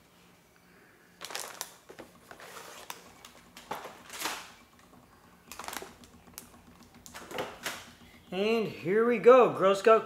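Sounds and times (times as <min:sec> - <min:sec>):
cardboard and plastic rustling: 0:01.2 - 0:04.6.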